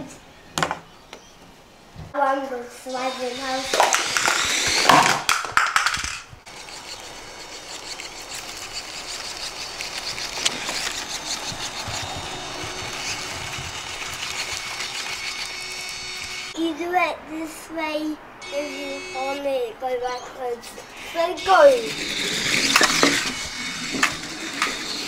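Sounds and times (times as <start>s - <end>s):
toy truck electric motor whining: 2.9s - 16.6s, 18.4s - 19.5s, 21.0s - 25.0s.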